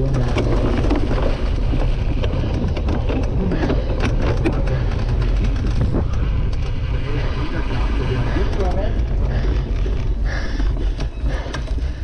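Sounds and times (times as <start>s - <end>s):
bike rattling over bumps: 0.0s - 12.0s
bike tyres rumbling on grass: 0.0s - 12.0s.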